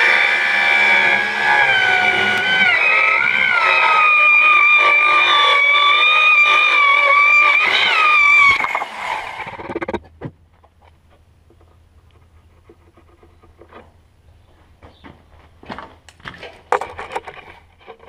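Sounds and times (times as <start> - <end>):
circular saw motor whine: 0.0 - 10.0.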